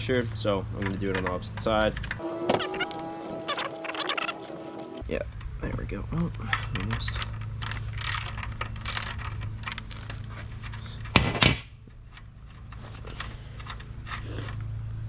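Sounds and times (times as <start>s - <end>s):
low steady hum: 0.0s - 15.0s
small metal clicks and scraping: 6.5s - 11.2s, 11.9s - 14.7s.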